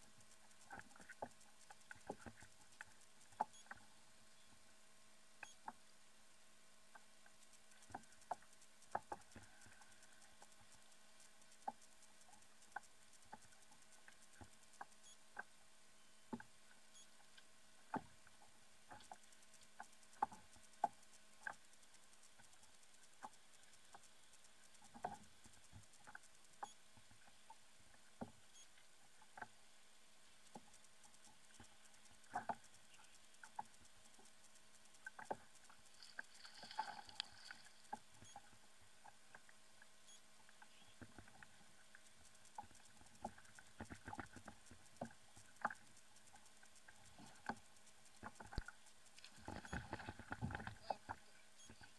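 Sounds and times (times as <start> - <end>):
faint ticks and knocks: 0.0 - 51.9
low steady hum: 0.0 - 51.9.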